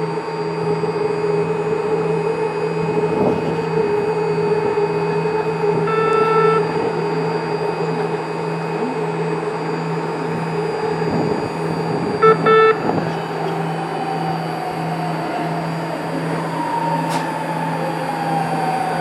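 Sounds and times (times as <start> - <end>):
train electrical hum: 0.0 - 19.0
short train horn toots: 5.9 - 6.8.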